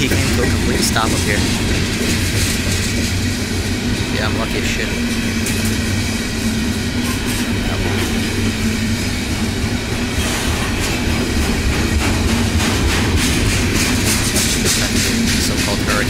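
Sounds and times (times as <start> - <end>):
wheels clicking over rail joints: 0.0 - 3.6, 10.2 - 16.0
freight train wheels rumbling: 0.0 - 16.0.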